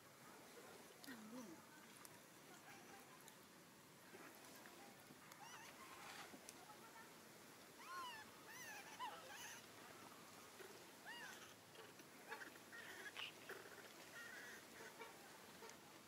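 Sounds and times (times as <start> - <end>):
young monkeys squeaky calls: 7.8 - 9.6, 11.0 - 11.6.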